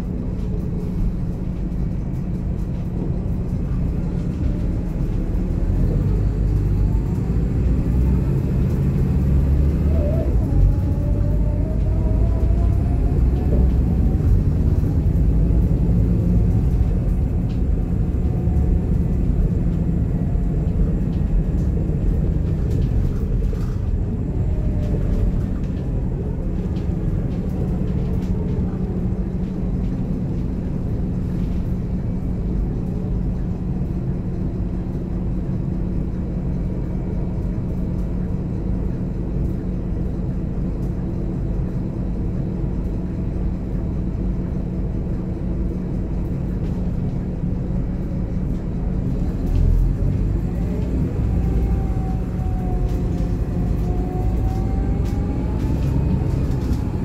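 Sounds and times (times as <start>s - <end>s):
bus engine drone: 0.0s - 57.0s
transmission whine: 49.9s - 57.0s.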